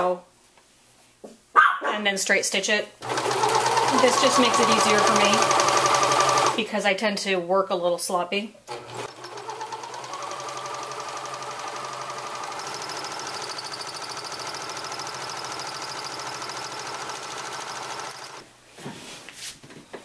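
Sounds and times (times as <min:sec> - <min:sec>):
overlock sewing machine stitching: 0:03.0 - 0:06.6, 0:08.7 - 0:18.4.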